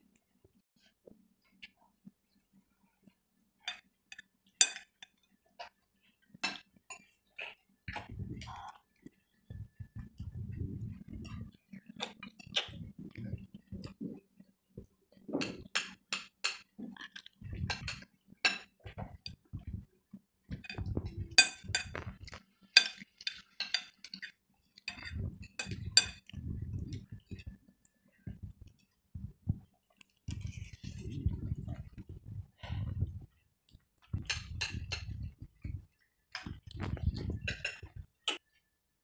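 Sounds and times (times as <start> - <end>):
cutlery clinking on plates: 17.7 - 19.4, 20.6 - 26.3.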